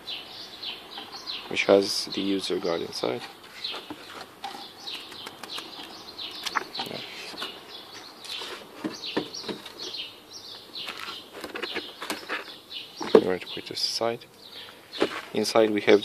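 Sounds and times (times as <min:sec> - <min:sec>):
small birds chirping: 0:00.0 - 0:16.0
paper and cardboard rustling: 0:10.8 - 0:13.3.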